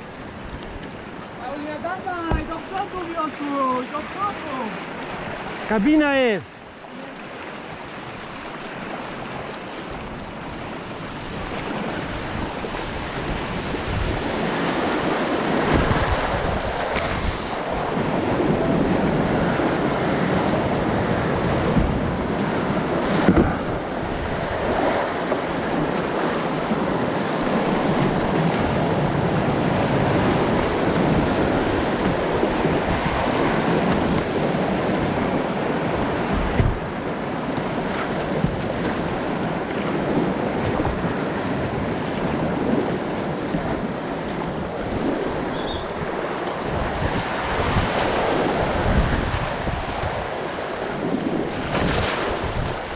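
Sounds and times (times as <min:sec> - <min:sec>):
rushing whitewater: 0:00.0 - 0:52.9
wind buffeting microphone: 0:07.7 - 0:52.9.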